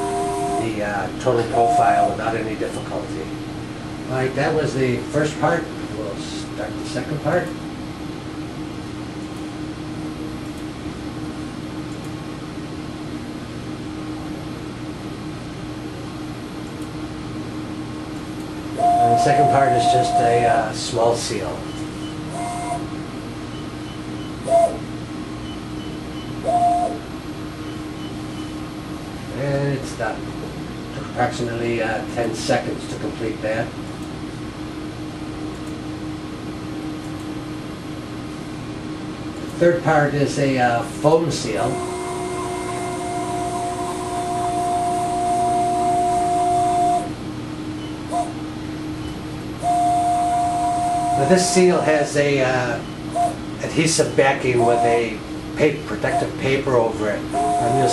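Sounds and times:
electric motor whine: 0:00.0 - 0:03.7, 0:41.6 - 0:47.1
motor drive whines: 0:00.0 - 0:07.6, 0:18.2 - 0:28.9, 0:40.9 - 0:57.9
steady hum: 0:00.0 - 0:57.9.

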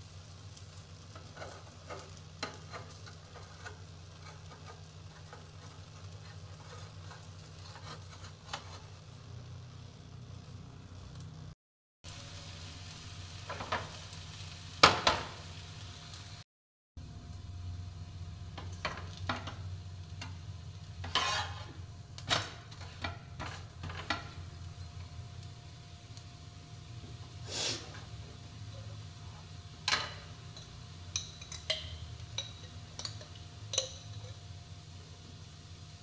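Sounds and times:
utensils and dishes clinking: 0:29.8 - 0:34.4.

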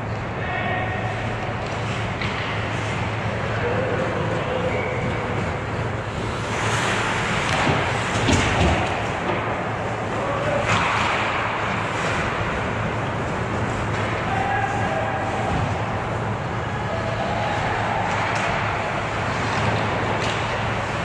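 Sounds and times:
hockey skates scraping ice: 0:01.7 - 0:16.1.

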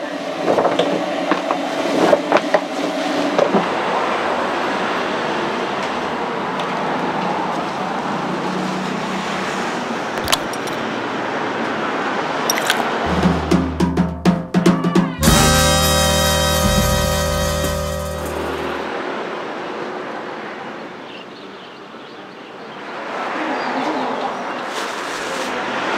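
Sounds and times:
music with drums and bass: 0:13.1 - 0:18.8.

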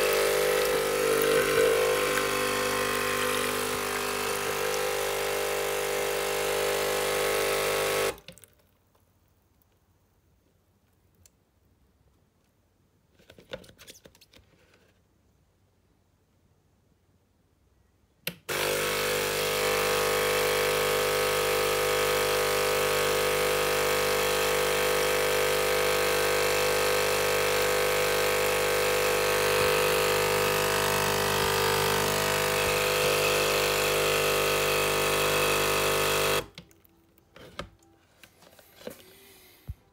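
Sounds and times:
coffee machine pump humming: 0:00.0 - 0:08.2, 0:18.5 - 0:36.6.

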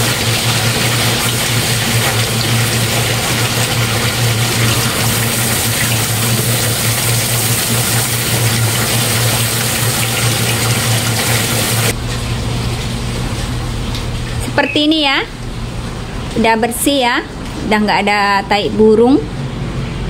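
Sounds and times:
hose water spraying on tiles: 0:00.0 - 0:12.0.

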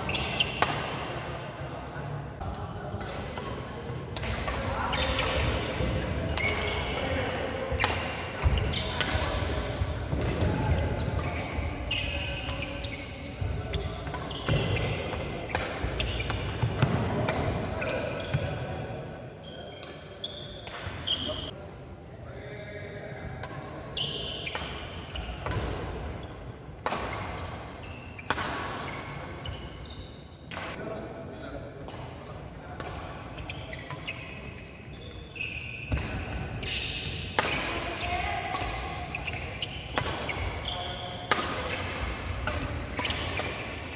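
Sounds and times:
shoes squeaking: 0:00.0 - 0:00.7, 0:04.8 - 0:07.2, 0:10.2 - 0:18.5, 0:19.4 - 0:21.5, 0:33.4 - 0:43.9
rackets hitting shuttlecock: 0:00.0 - 0:01.2, 0:02.5 - 0:13.0, 0:13.7 - 0:18.4, 0:24.4 - 0:26.1, 0:26.7 - 0:29.5, 0:35.9 - 0:43.9.

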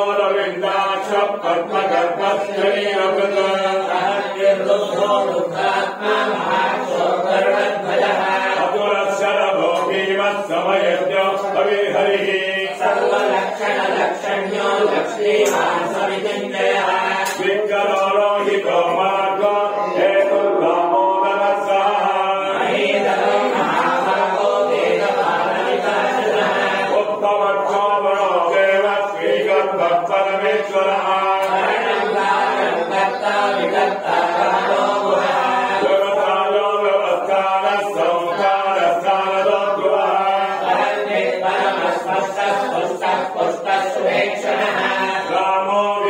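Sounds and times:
voices chanting mantras: 0:00.0 - 0:46.0.

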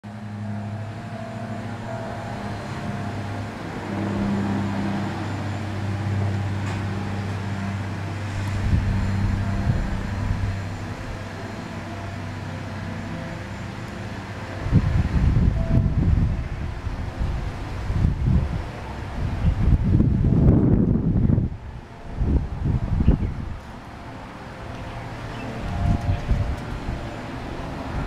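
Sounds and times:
low mechanical hum: 0:00.0 - 0:28.0
wind buffeting microphone: 0:05.8 - 0:11.4, 0:14.4 - 0:28.0.

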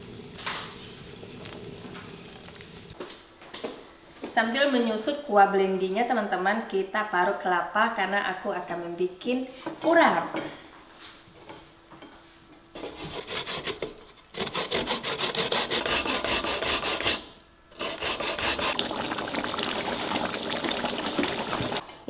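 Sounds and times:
coconut grating rasps: 0:12.8 - 0:21.8.

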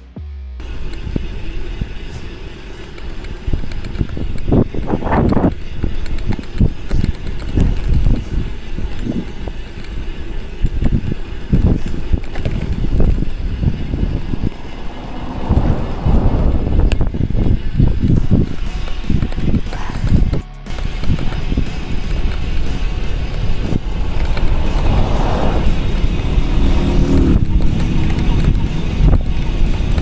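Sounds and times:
bicycle tyres rolling on asphalt: 0:00.6 - 0:30.0
bike knocks and rattles: 0:00.8 - 0:14.5
wind rumble on microphone: 0:03.3 - 0:30.0.

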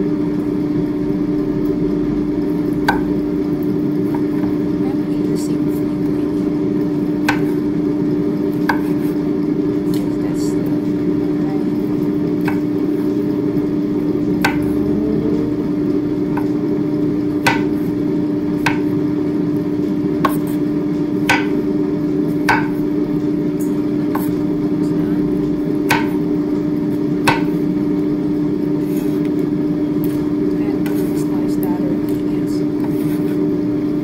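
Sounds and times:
steady loud hum: 0:00.0 - 0:34.0.

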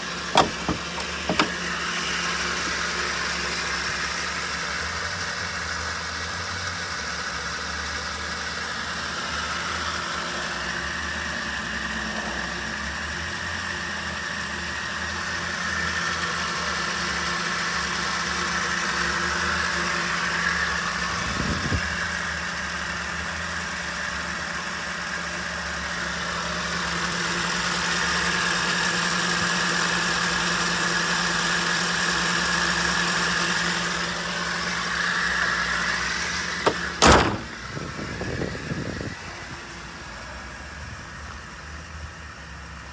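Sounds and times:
car engine idling: 0:00.0 - 0:42.9.

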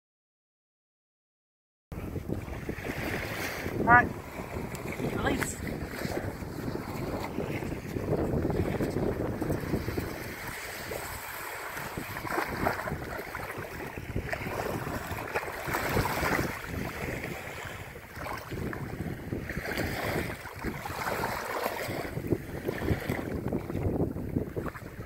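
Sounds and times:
wind buffeting microphone: 0:01.9 - 0:25.0
shallow surf washing in: 0:02.0 - 0:25.0.

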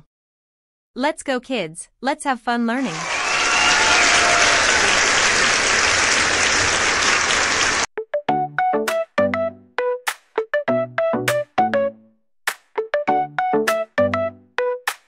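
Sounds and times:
crowd applause: 0:02.8 - 0:07.9
crowd cheering: 0:02.8 - 0:07.9
keyboard melody: 0:08.1 - 0:12.2, 0:13.0 - 0:14.9.

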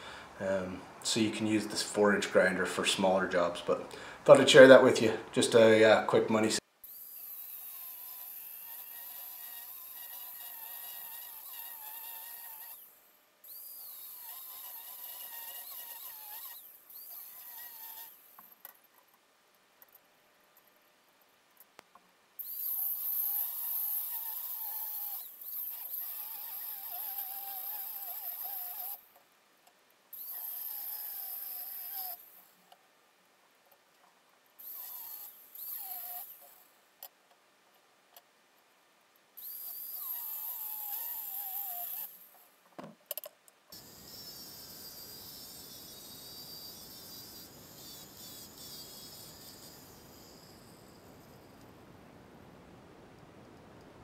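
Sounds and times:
steady faint hiss: 0:00.0 - 0:54.0
angle grinder cutting steel: 0:06.9 - 0:12.8, 0:13.5 - 0:18.2, 0:30.2 - 0:32.2, 0:39.4 - 0:42.3, 0:43.8 - 0:51.5.

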